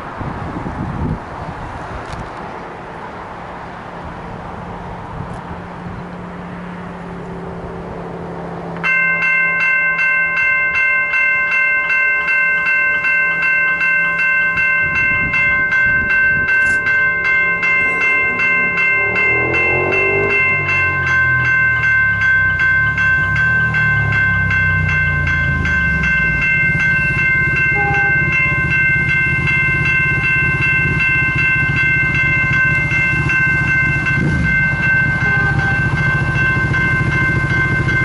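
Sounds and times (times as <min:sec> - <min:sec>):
level crossing warning bell: 0:08.8 - 0:38.0
low rumble: 0:15.1 - 0:27.6.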